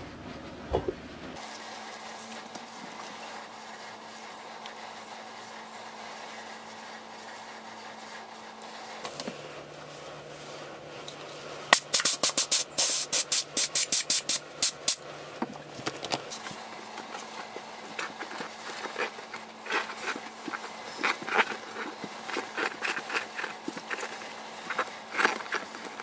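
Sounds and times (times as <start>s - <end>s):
rubber tube scuffs and rustles: 15.8s - 26.0s.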